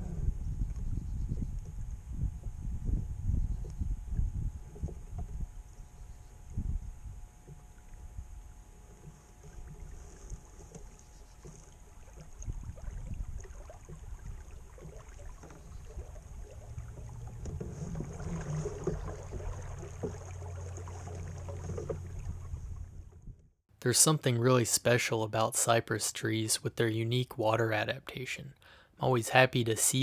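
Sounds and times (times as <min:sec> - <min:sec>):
wind rumble on microphone: 0:00.0 - 0:23.5
water lapping on a boat hull: 0:03.4 - 0:23.5.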